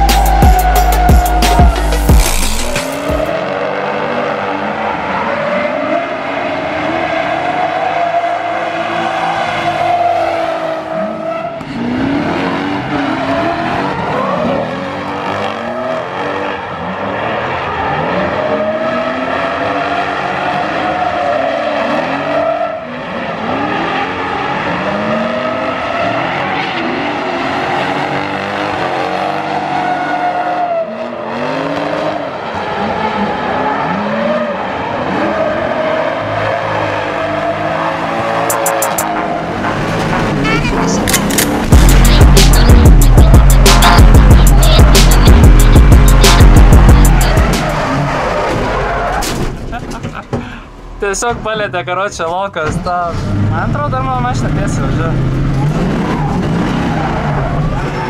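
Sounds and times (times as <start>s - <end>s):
car engines revving hard: 0.0s - 51.5s, 52.7s - 58.0s
tyres screeching: 40.0s - 51.5s.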